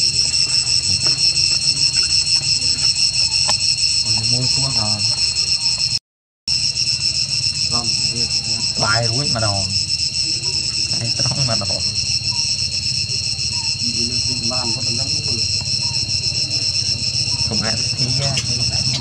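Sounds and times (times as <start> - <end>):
insect chorus buzzing: 0.0 - 19.0
faint voice-like calls: 7.7 - 19.0.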